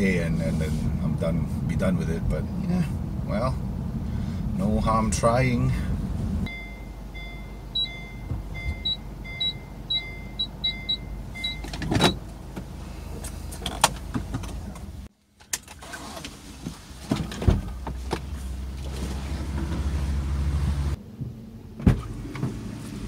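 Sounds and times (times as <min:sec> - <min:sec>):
car warning chime beeping: 0:06.4 - 0:12.2.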